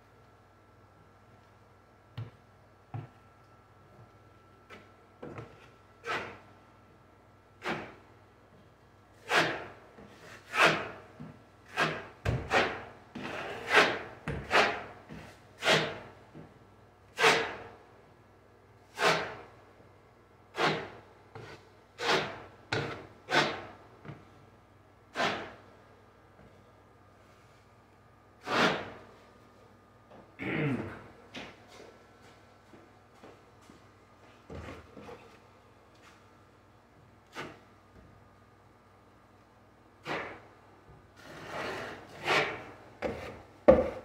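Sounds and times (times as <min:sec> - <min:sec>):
drywall knife scraping compound: 0:06.0 - 0:06.5, 0:07.6 - 0:08.0, 0:09.2 - 0:16.1, 0:17.2 - 0:17.7, 0:18.9 - 0:19.5, 0:20.5 - 0:24.2, 0:25.1 - 0:25.7, 0:28.4 - 0:29.1, 0:37.2 - 0:37.7, 0:40.0 - 0:40.5, 0:41.2 - 0:44.0.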